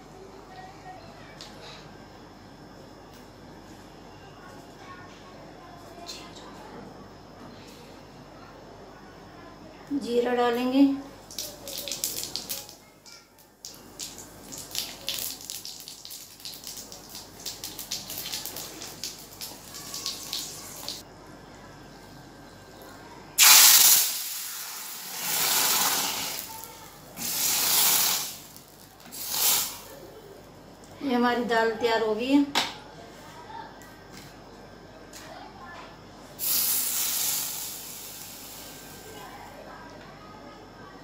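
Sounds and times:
loud sizzle: 11.2s - 21.0s, 23.4s - 30.0s, 36.4s - 39.4s
seeds crackling in hot oil: 11.2s - 21.0s, 23.4s - 30.0s, 36.4s - 39.3s.

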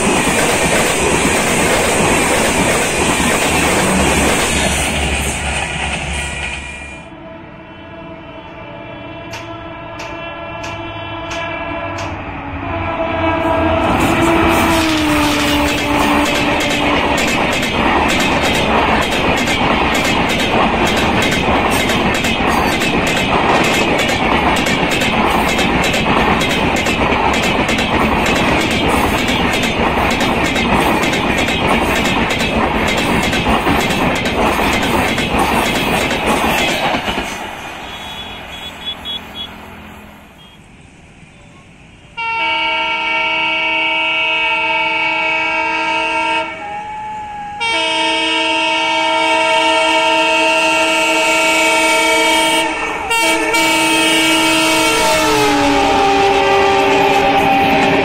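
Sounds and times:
train wheels clacking over rail joints: 0.0s - 6.7s, 14.0s - 39.5s
locomotive horn blast: 7.0s - 17.2s, 37.8s - 40.7s, 42.2s - 58.0s.

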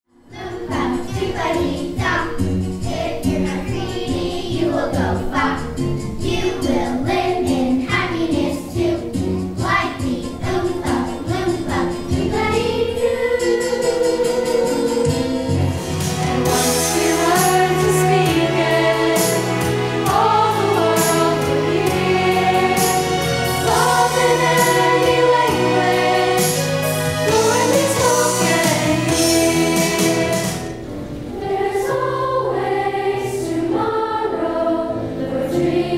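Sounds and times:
choir singing over bass: 0.3s - 35.9s
song with steady beat: 13.1s - 30.9s.

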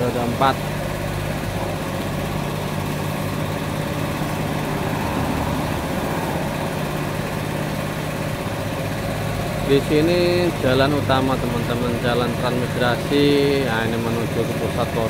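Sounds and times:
low engine hum: 0.0s - 15.0s
motorcycles driving past: 3.4s - 13.5s.

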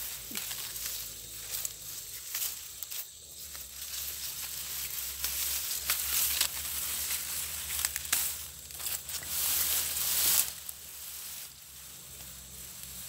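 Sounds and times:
dry rice stalks rustling: 0.0s - 13.0s.

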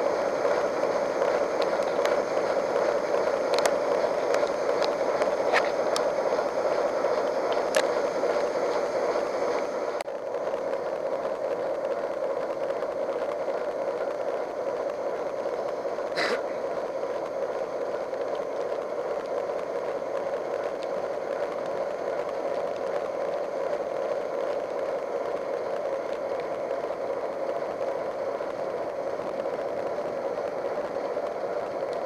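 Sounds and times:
train running noise from inside carriage: 0.0s - 32.0s
sharp clicks: 3.5s - 6.2s.

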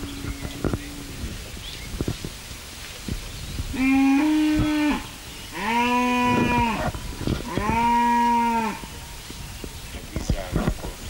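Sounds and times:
cattle mooing: 3.8s - 8.9s.

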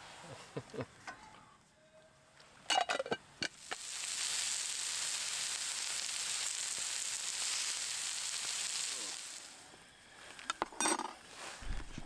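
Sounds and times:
food sizzling in frying pan: 3.4s - 9.6s.

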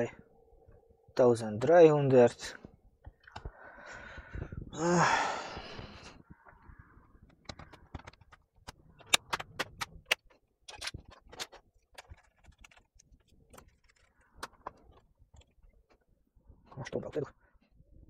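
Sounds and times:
plastic clips snapping into place: 7.3s - 12.8s.

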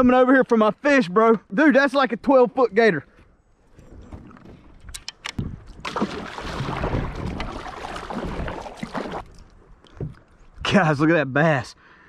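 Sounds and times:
paddle splashing in water: 5.7s - 10.2s.

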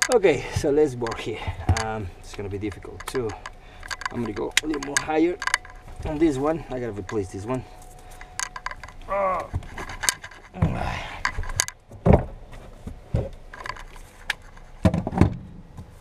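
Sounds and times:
hand tools clinking on metal: 0.0s - 11.8s
person grunting: 9.1s - 9.6s, 10.6s - 11.2s.

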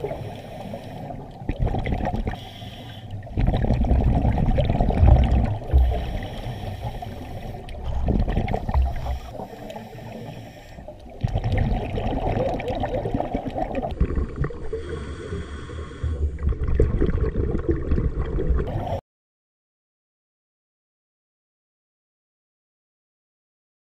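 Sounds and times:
muffled underwater rumble: 0.0s - 19.0s
scuba exhaust bubbles gurgling: 0.0s - 19.0s.

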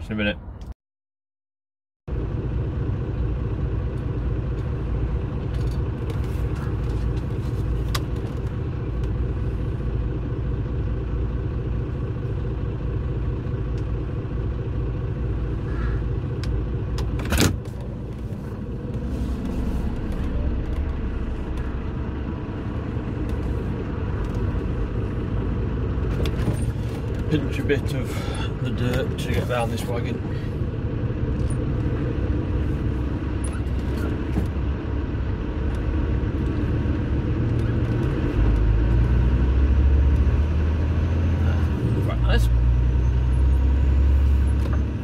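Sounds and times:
diesel engine droning: 2.1s - 45.0s.

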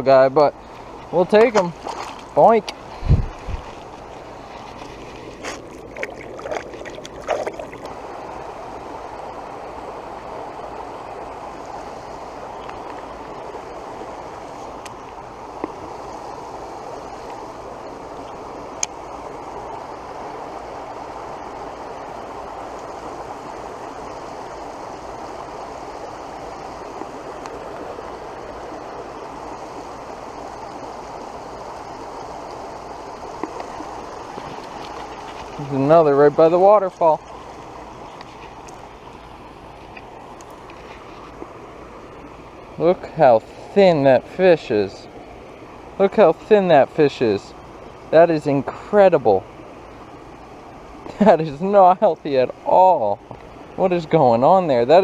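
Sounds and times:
water rushing from small waterfall: 0.6s - 40.9s.

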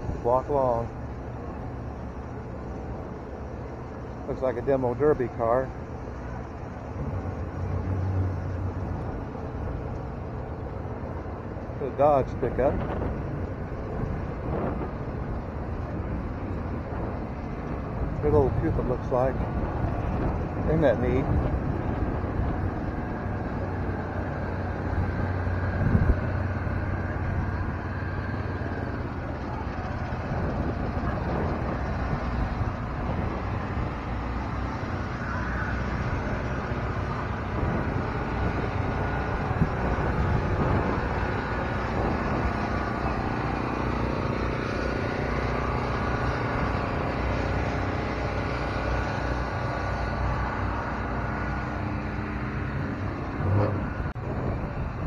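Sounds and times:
outdoor background noise: 0.0s - 55.0s
vehicle engine running: 0.0s - 55.0s.

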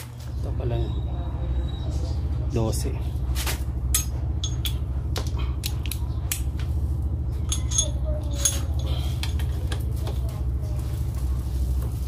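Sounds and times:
steady low hum: 0.0s - 12.0s
metal tools clinking: 3.8s - 4.9s, 7.3s - 9.9s.

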